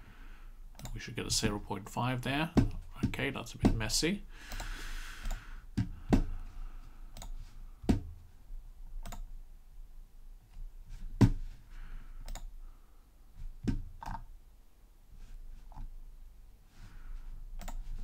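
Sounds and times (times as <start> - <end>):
computer mouse clicking: 0.8 - 1.0, 4.5 - 5.4, 7.1 - 7.4, 9.0 - 9.3, 12.2 - 12.5, 17.6 - 17.9.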